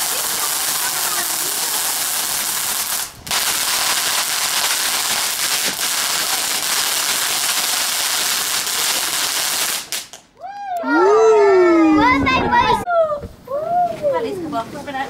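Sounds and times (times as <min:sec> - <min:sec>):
firework fountain hissing: 0:00.0 - 0:10.3.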